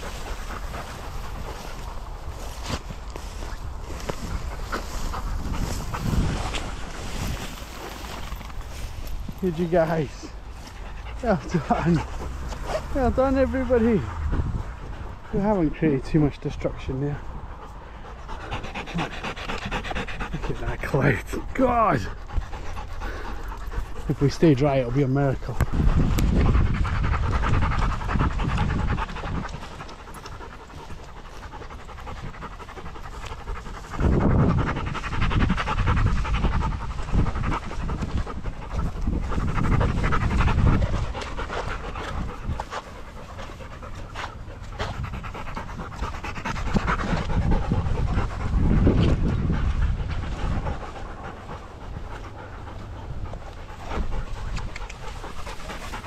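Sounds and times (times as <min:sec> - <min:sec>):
dog panting: 0:00.0 - 0:56.0
low rumble: 0:10.2 - 0:15.4, 0:25.4 - 0:56.0.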